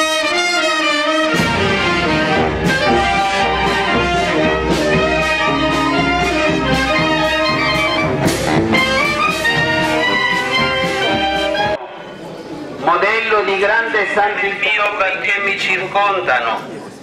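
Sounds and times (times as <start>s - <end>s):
marching brass band playing: 0.0s - 12.0s.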